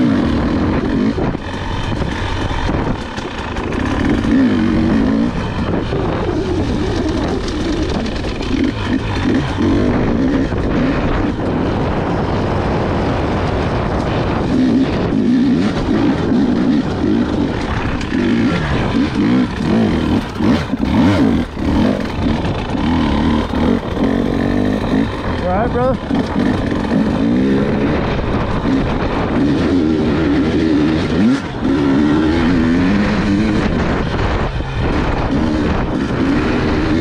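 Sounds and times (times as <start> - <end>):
dirt bike engine revving: 0.0 - 37.0.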